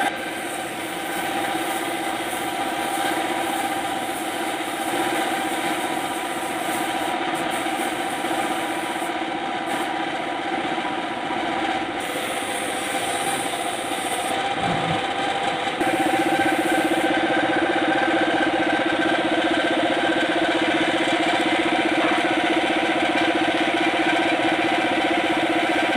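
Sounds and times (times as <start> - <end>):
spray gun hissing: 0.0 - 9.1, 9.7 - 9.9, 12.0 - 17.2
steady engine hum: 0.0 - 25.9.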